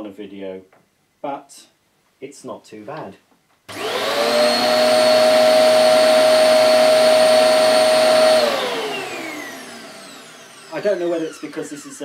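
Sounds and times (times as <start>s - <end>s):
vacuum cleaner whining: 3.7s - 12.0s.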